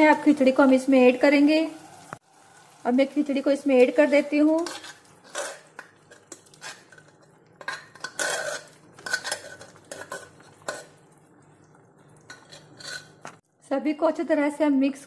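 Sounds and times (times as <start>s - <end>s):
spoon scraping pressure cooker: 4.5s - 11.0s, 12.3s - 13.4s.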